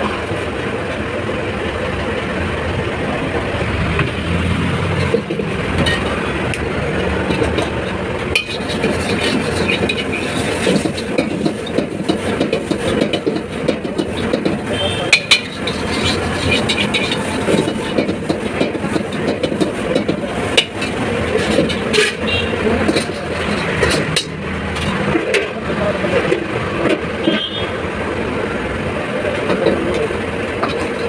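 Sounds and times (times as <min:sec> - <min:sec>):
gas burner rushing: 0:00.0 - 0:31.0
spatula clanking against wok: 0:07.2 - 0:25.5.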